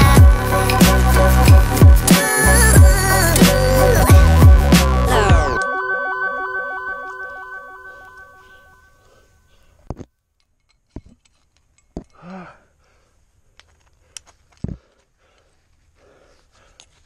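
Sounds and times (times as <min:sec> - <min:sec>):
background music: 0:00.0 - 0:08.9
climbing gear clicking and clinking: 0:10.4 - 0:12.4
person grunting: 0:12.2 - 0:12.7.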